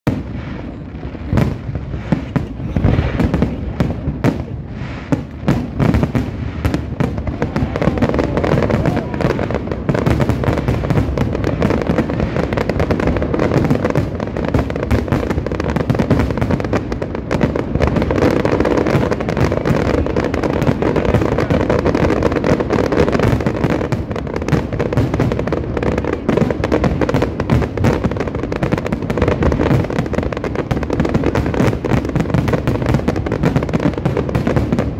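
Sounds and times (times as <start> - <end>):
fireworks bursting and crackling: 0.0 - 34.9.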